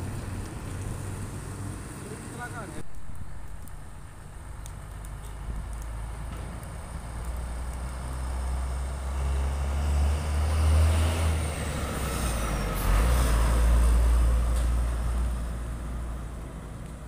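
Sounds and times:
diesel truck driving past: 4.3s - 16.9s.

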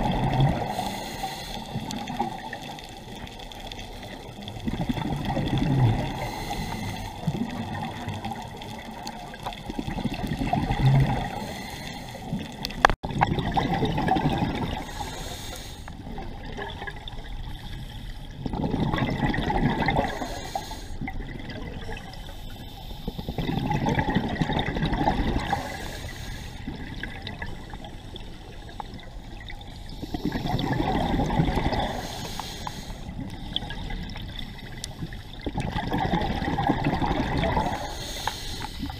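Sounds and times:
underwater bubbles gurgling: 0.0s - 38.9s.

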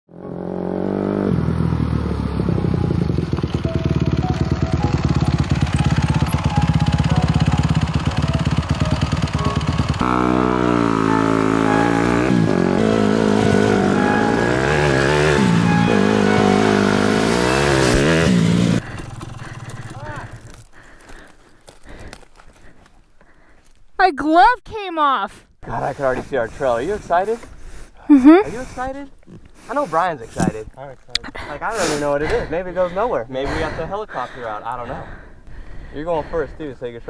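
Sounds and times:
dirt bike engine revving: 0.1s - 20.6s.

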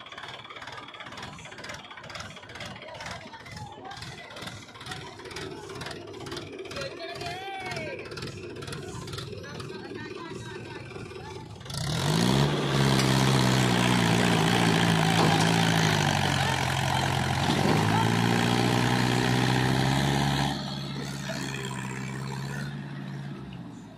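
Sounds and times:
tractor diesel engine revving: 0.0s - 23.9s.

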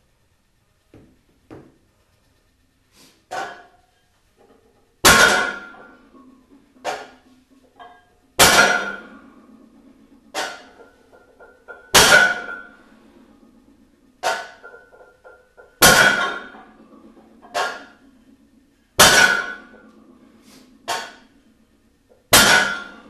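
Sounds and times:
weight plates clanging: 4.4s - 20.1s, 22.1s - 23.0s.

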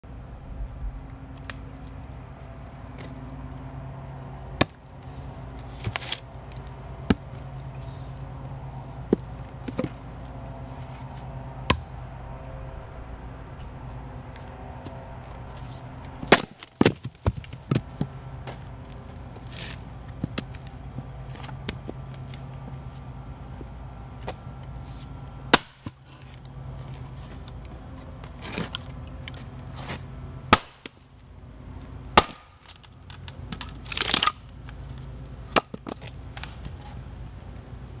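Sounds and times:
maul chopping logs: 4.6s - 4.8s, 11.7s - 12.0s, 16.1s - 18.2s, 25.5s - 26.4s, 29.8s - 31.0s, 32.2s - 34.4s, 35.5s - 36.2s
log splintering: 16.0s - 18.0s, 25.5s - 26.4s, 30.5s - 31.0s, 32.2s - 34.5s.

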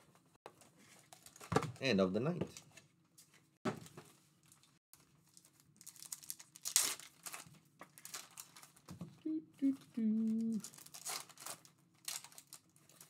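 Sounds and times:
foil wrappers crinkling: 1.1s - 1.5s, 4.4s - 8.9s, 10.4s - 13.0s
foil wrapper tearing: 5.1s - 8.9s, 10.6s - 13.0s.

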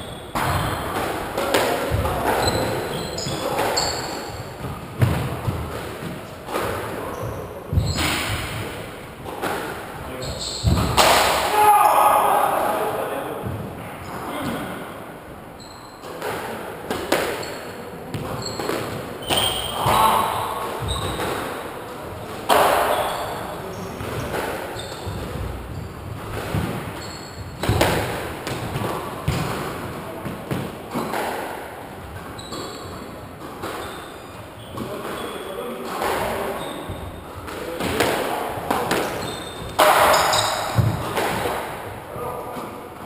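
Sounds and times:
shoes squeaking on wooden floor: 0.0s - 8.7s, 10.0s - 11.0s, 15.6s - 16.2s, 17.3s - 21.6s, 22.5s - 29.5s, 32.0s - 37.5s, 38.6s - 41.3s
squash ball knocks: 4.6s - 7.0s, 10.6s - 11.5s, 24.0s - 31.7s, 36.9s - 41.8s.

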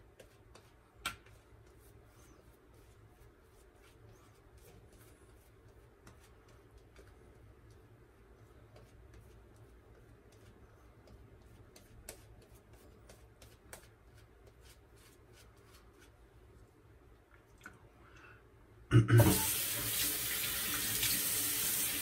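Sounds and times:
sink faucet water running: 19.2s - 22.0s.

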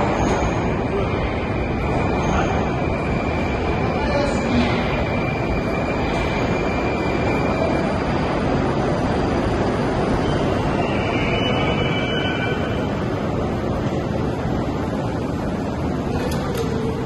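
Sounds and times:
train rumbling into station: 0.0s - 17.0s
high brake squeal: 10.2s - 12.9s.

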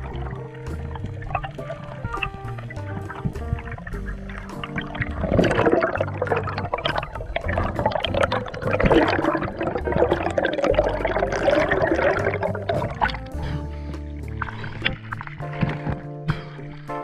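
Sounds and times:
background music with held notes: 0.0s - 17.0s
underwater bubbling and gurgling: 0.0s - 17.0s.

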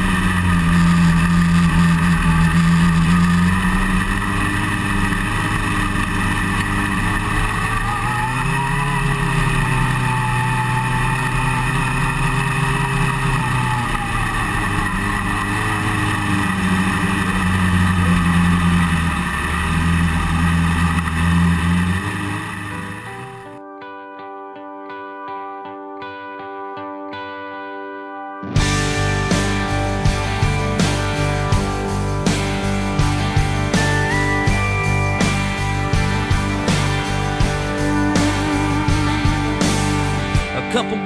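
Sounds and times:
race car engine at low speed: 0.0s - 23.6s, 28.4s - 41.0s.

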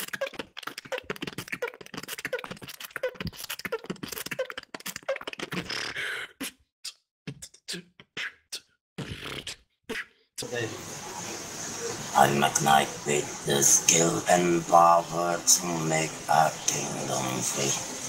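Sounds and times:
beatboxing: 0.0s - 10.2s.

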